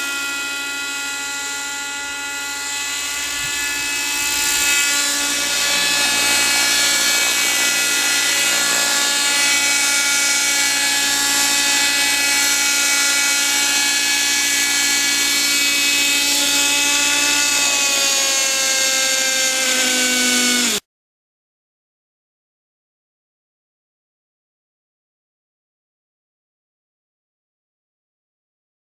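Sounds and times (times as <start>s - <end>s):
model helicopter engine whining: 0.0s - 20.8s.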